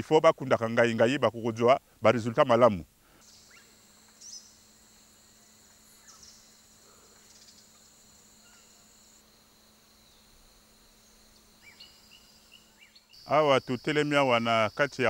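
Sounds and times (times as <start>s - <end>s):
high-pitched insect trilling: 3.2s - 15.0s.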